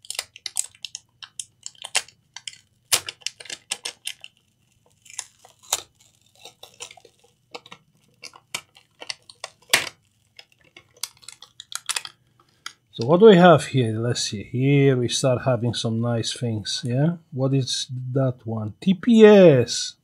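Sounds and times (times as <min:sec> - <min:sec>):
small hard objects clicking: 0:00.0 - 0:12.8
faint steady hum: 0:00.0 - 0:20.0.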